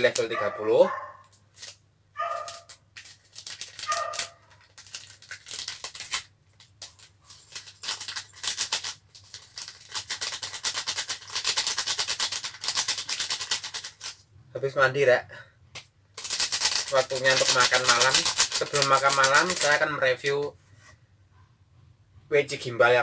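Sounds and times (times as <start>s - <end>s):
plastic packet crackling: 1.5s - 14.2s, 16.2s - 20.3s.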